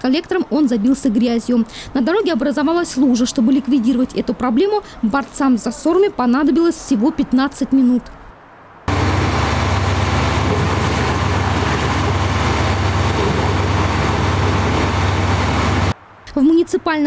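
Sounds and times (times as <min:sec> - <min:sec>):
truck diesel engine drone: 0:08.9 - 0:16.0.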